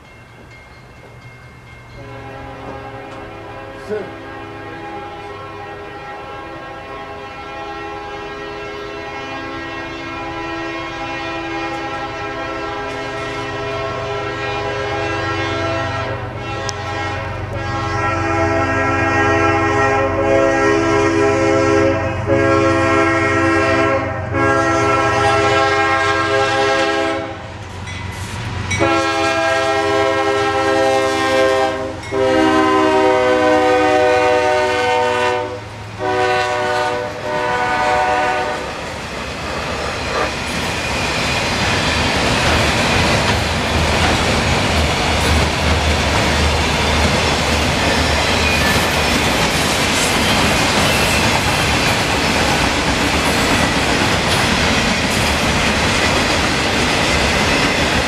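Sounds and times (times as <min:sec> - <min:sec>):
low rumble of passing train: 0:00.0 - 0:58.0
locomotive air horn blasts: 0:02.0 - 0:27.5, 0:28.8 - 0:38.7.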